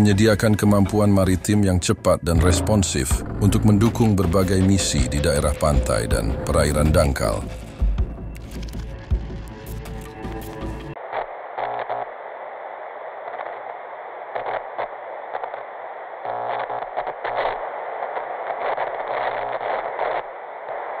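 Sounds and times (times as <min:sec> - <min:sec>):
static crackles: 0:00.0 - 0:21.0
tv static hiss: 0:10.9 - 0:21.0.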